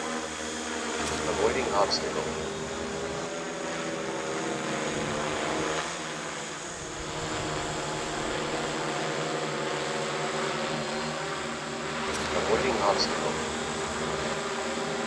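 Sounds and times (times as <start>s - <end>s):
drone propellers buzzing: 0.0s - 15.0s.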